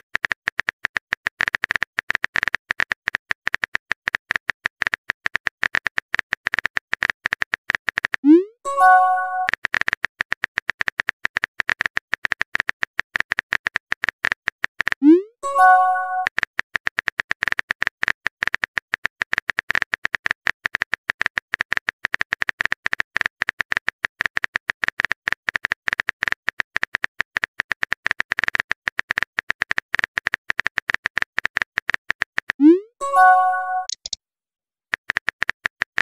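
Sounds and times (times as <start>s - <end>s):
phone keyboard typing clicks: 27.8s - 34.2s
brief chime: 33.0s - 34.0s.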